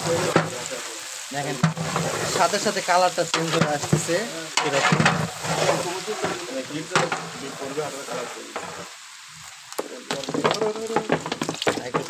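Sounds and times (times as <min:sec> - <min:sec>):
prawns sizzling in oil: 0:00.0 - 0:12.0
metal spatula scraping pot: 0:01.5 - 0:09.0.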